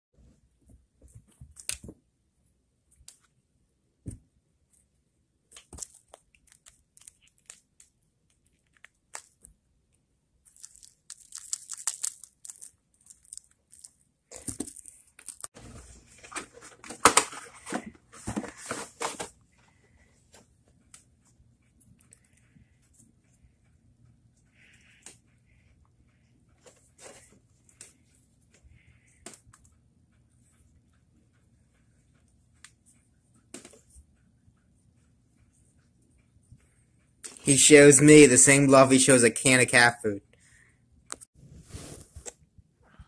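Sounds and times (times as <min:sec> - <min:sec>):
packaging rustling and tearing: 0:10.5 - 0:15.5.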